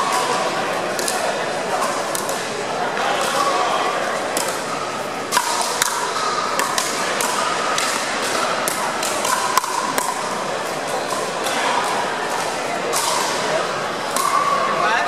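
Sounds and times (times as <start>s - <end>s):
paddles hitting plastic ball: 0.9s - 1.3s, 2.1s - 2.4s, 4.3s - 13.3s.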